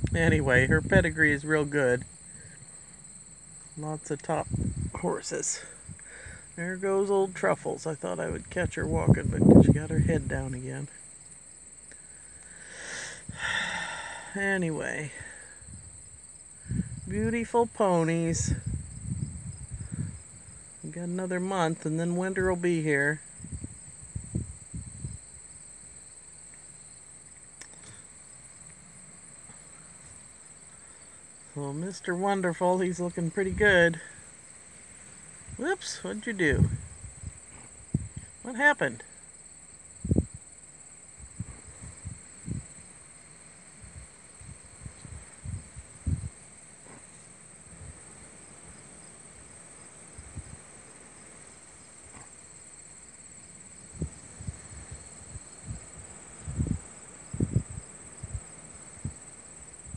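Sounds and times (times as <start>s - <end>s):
crickets chirring: 0.0s - 59.9s
insects trilling: 0.0s - 59.9s
faint click: 27.4s - 28.0s.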